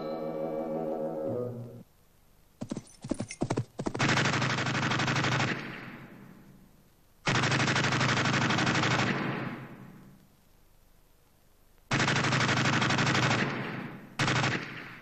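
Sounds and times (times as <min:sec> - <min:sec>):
machine gun firing: 0:03.1 - 0:06.1, 0:07.3 - 0:09.8, 0:11.9 - 0:15.0.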